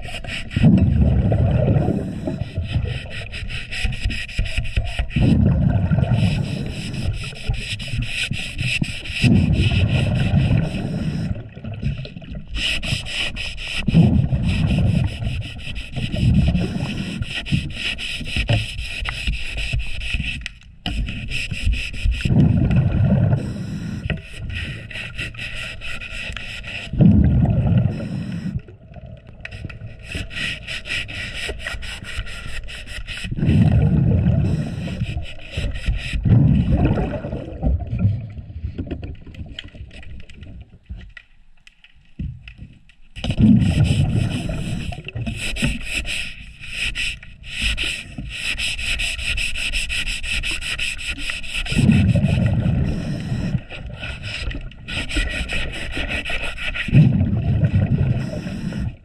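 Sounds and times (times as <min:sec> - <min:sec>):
diver exhaust bubbles: 0:00.0 - 0:03.3, 0:05.1 - 0:07.6, 0:09.2 - 0:12.5, 0:13.8 - 0:17.3, 0:22.2 - 0:24.8, 0:26.8 - 0:30.7, 0:33.2 - 0:40.6, 0:43.2 - 0:45.4, 0:51.7 - 0:56.0, 0:56.8 - 0:59.0
underwater scraping: 0:00.0 - 0:41.2, 0:42.4 - 0:59.0.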